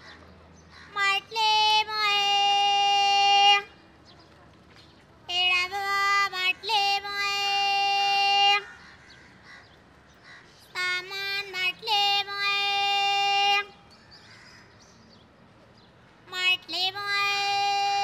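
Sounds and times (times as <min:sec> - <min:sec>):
woman calling sing-song street cry: 0:00.9 - 0:03.8, 0:05.3 - 0:08.9, 0:10.7 - 0:13.9, 0:16.2 - 0:18.0.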